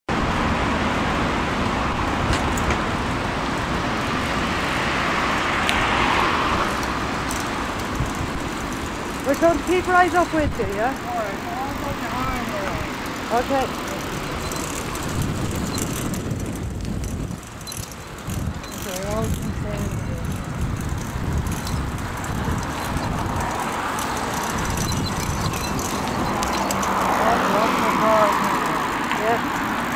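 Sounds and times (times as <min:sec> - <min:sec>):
car passing by: 0:00.1 - 0:16.2, 0:18.7 - 0:29.9
bicycle tyres rolling on pavement: 0:00.1 - 0:29.9
road traffic noise: 0:00.1 - 0:29.9
wind rumbling on microphone: 0:00.1 - 0:29.9
small rattles and clicks: 0:06.6 - 0:29.9.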